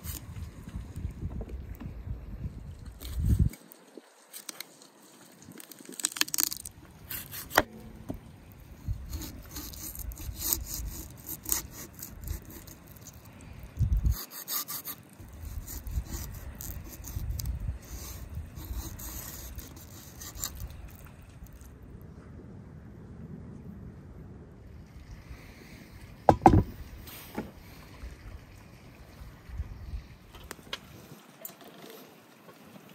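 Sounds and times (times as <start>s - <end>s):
knife sawing through joint: 7.1s - 7.7s, 8.8s - 13.2s, 14.0s - 21.7s.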